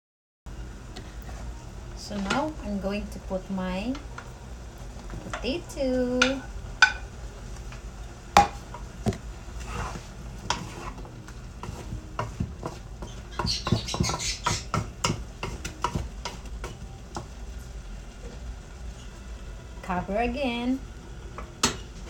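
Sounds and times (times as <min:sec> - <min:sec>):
light sizzle: 0:00.5 - 0:22.0
wooden spatula scraping a pan: 0:09.5 - 0:14.8.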